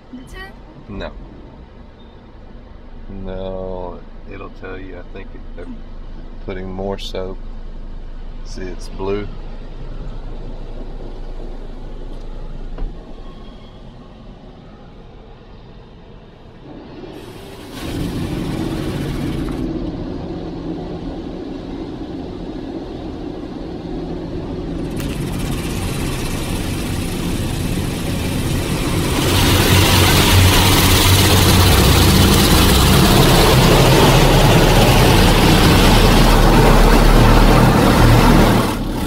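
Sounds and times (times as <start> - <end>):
car wash machinery rumble: 16.3 - 39.0.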